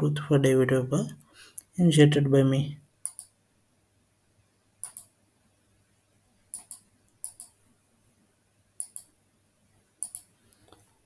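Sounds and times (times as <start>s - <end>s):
computer mouse clicking: 3.0s - 3.4s, 4.8s - 5.2s, 6.5s - 7.6s, 8.8s - 9.2s, 10.0s - 10.9s.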